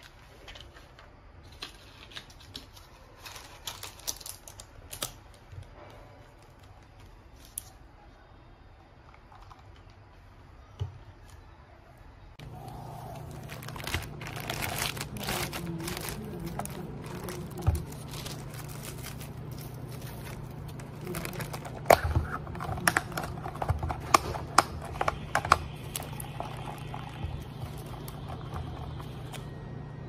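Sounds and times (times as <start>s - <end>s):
plastic bag crinkling: 1.8s - 5.5s, 12.4s - 29.5s
steady low hum: 12.2s - 30.0s.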